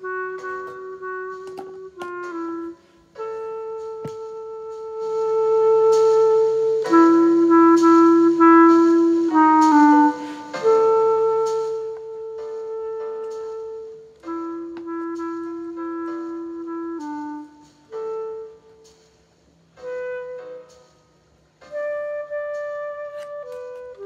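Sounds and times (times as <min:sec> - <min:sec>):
clarinet melody: 0:00.0 - 0:24.0.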